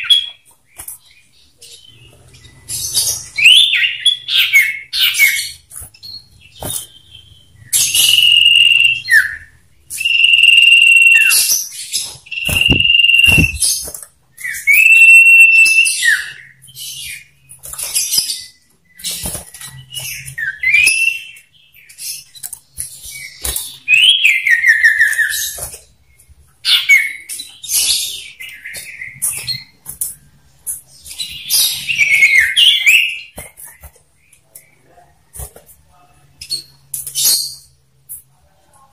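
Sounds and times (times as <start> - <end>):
bird singing whistles and trills: 1.7 - 17.3.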